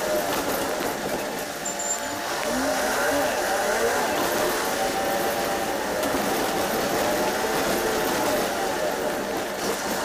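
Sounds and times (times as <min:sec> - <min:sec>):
bus engine hum: 0:00.0 - 0:10.0
road noise: 0:00.0 - 0:10.0.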